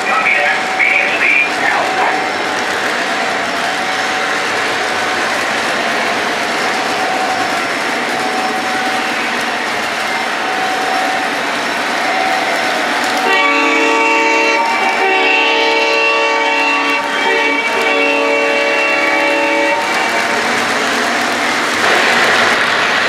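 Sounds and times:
model train rolling on track: 0.0 - 23.0
train horn blasts: 13.2 - 20.4.

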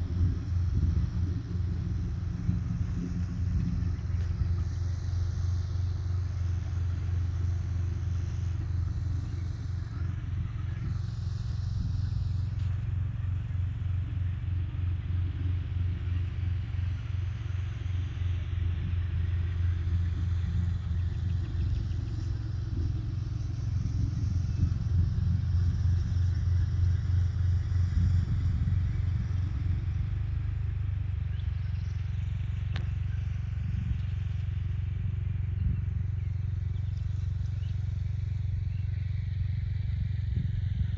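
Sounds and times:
wind buffeting microphone: 0.0 - 14.4, 18.6 - 39.0.

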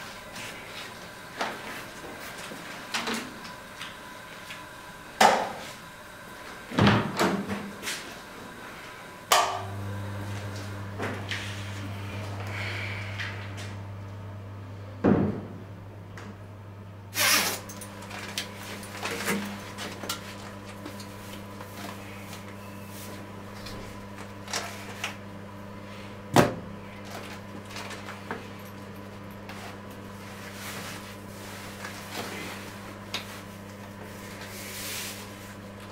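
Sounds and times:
steady low hum: 7.5 - 35.8.

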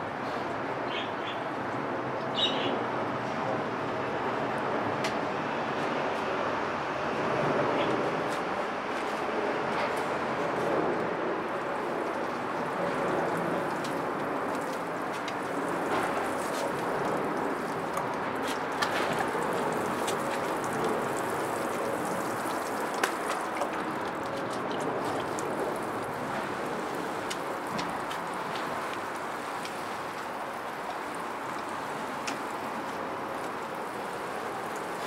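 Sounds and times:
water showering onto soil and leaves: 11.3 - 35.0.

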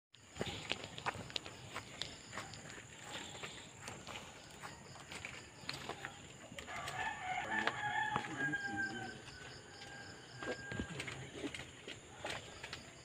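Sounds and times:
footsteps: 0.2 - 13.0
rooster crowing: 5.9 - 11.4.

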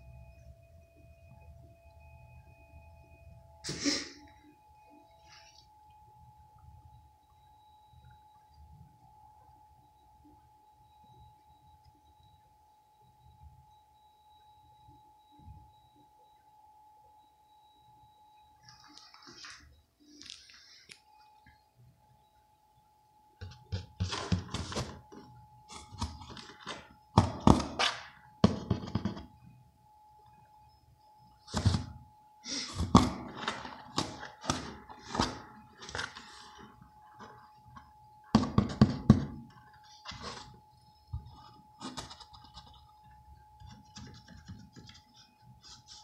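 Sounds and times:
thumps and knocks on cardboard box: 23.4 - 25.0, 27.2 - 27.8, 28.4 - 29.3, 32.8 - 35.4, 38.3 - 39.5.

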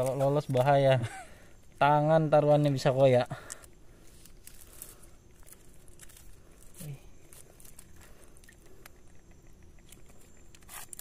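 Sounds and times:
plastic string crinkling: 3.4 - 11.0.

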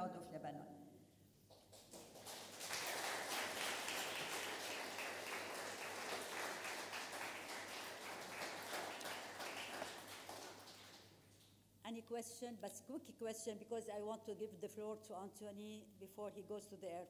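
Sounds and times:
audience applauding: 1.5 - 11.2.

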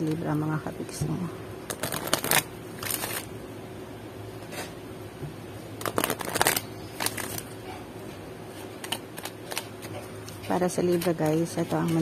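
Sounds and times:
cards being shuffled: 1.7 - 3.3, 5.8 - 7.5, 8.5 - 12.0.

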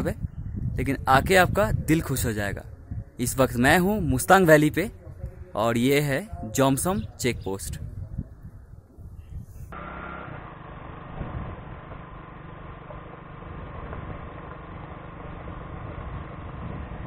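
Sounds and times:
muffled engine drone: 9.7 - 17.0.

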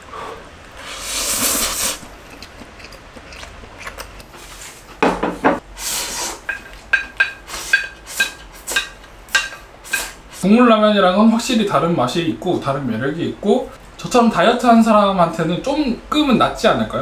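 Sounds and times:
noodles being slurped: 0.8 - 4.8.

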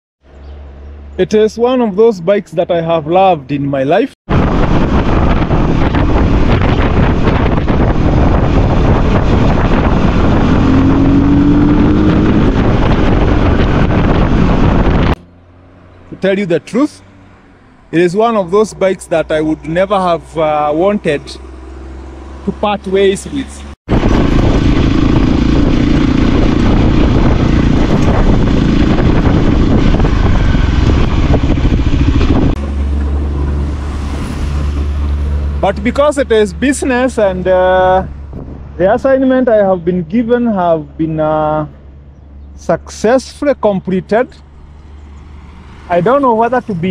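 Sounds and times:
wind rushing over microphone: 4.3 - 22.5, 23.2 - 39.6
motorcycle engine running: 20.6 - 33.9.

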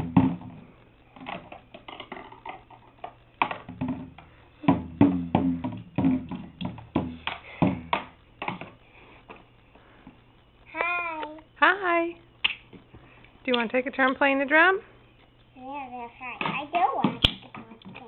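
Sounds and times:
toy drum hits: 0.0 - 0.6, 3.4 - 8.7.

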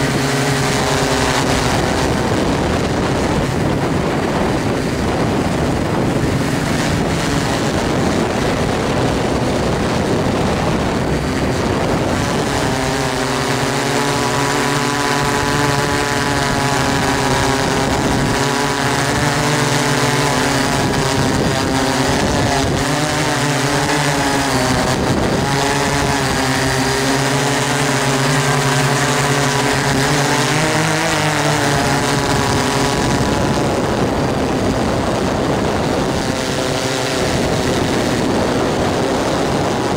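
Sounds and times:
drone motors humming: 0.0 - 39.9
wind rushing: 0.1 - 13.6.

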